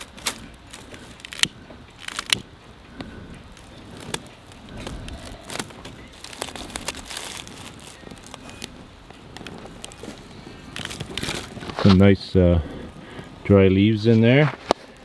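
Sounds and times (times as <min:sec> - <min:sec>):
sharp snaps of fire: 0:00.0 - 0:10.0
leaves and twigs crackling in fire: 0:00.0 - 0:15.0.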